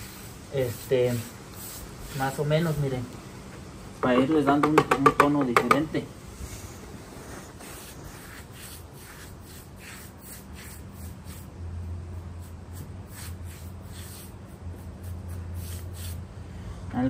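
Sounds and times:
paintbrush scratching on concrete: 0.0 - 3.0, 6.4 - 11.6, 12.2 - 16.2
steady low hum: 5.8 - 17.0.

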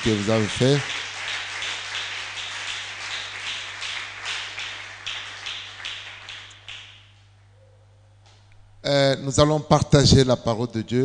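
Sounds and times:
congregation clapping in rhythm: 0.0 - 7.2.

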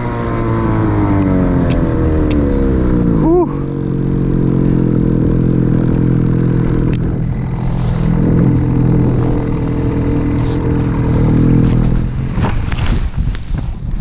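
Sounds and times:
snowmobile engine at high revs: 0.0 - 14.0
rush of snow: 7.2 - 14.0.

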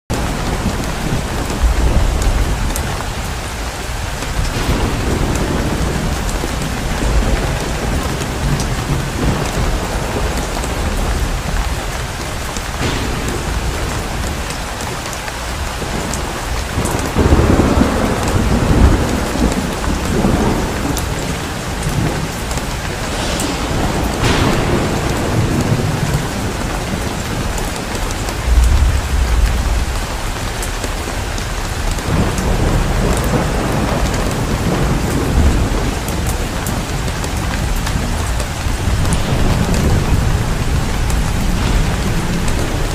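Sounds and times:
steady rain hiss: 0.1 - 42.9
deep rumbling swells: 21.8 - 27.5.

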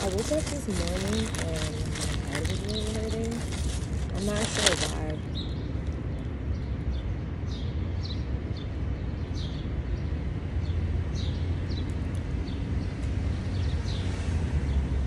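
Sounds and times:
birds chirping: 0.0 - 6.3
street traffic rumble: 0.0 - 15.0.

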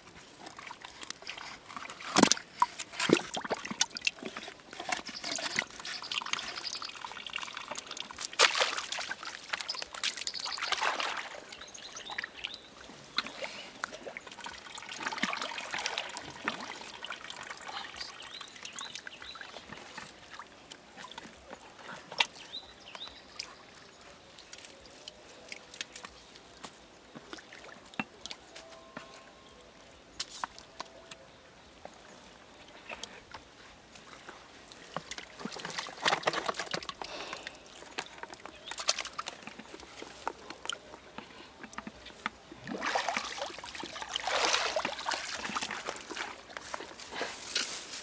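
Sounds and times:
water splashing: 0.4 - 21.3, 34.7 - 47.2
hands sloshing in muddy water: 0.5 - 22.4, 41.6 - 48.0.

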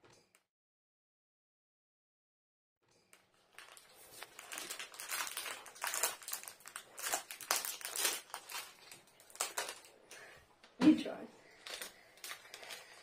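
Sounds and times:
plastic wrapper crinkling: 3.1 - 10.3, 11.5 - 13.0.

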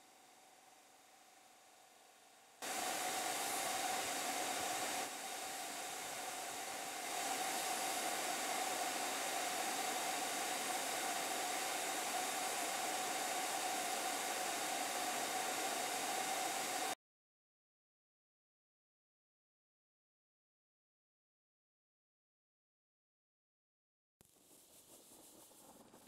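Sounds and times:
paint sprayer hissing and whining: 0.0 - 17.0.

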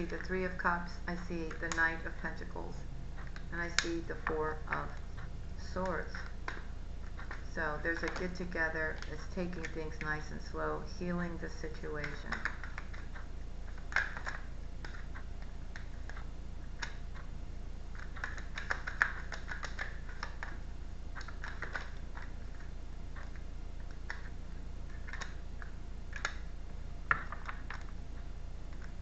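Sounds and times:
steady low hum: 0.0 - 29.0
cards being shuffled: 12.0 - 17.0, 17.9 - 26.5.

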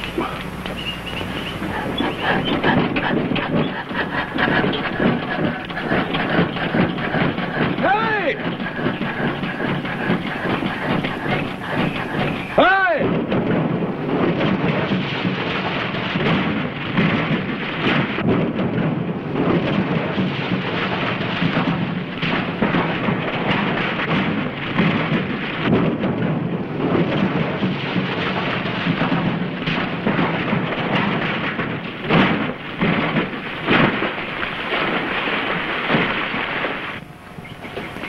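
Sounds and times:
car crashing down rocky hillside: 14.3 - 37.0.

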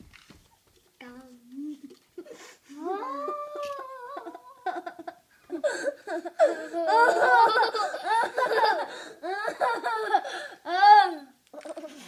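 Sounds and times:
people laughing: 4.2 - 10.3.

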